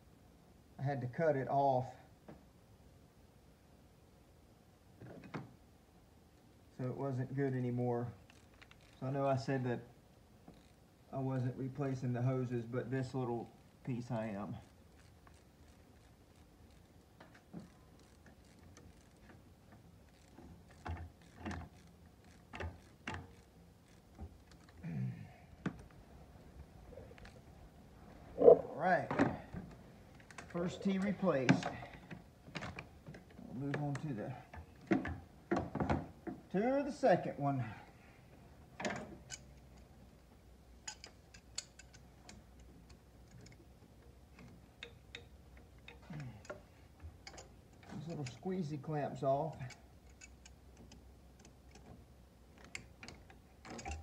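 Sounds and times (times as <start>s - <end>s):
hand tools and metal parts clicking: 6.8s - 9.6s, 11.4s - 24.8s, 28.4s - 36.5s, 38.8s - 54.0s
sharp clicks of hose fitting: 40.8s - 48.4s.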